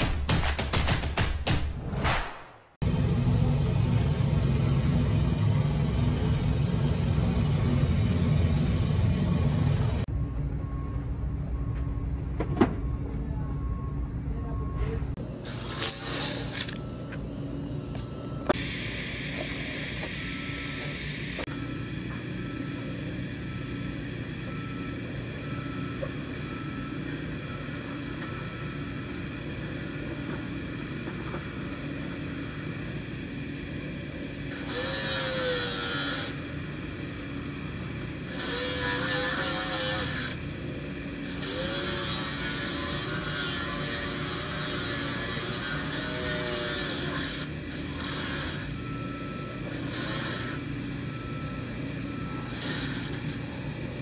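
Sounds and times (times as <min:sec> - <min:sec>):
welding arc buzzing hiss: 0:02.8 - 0:10.1, 0:18.5 - 0:54.0.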